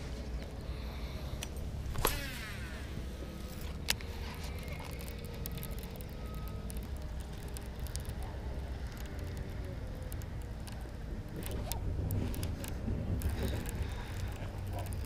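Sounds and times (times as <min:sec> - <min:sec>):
wind rumbling on microphone: 0:01.5 - 0:15.0
fishing reel clicking: 0:02.0 - 0:08.2.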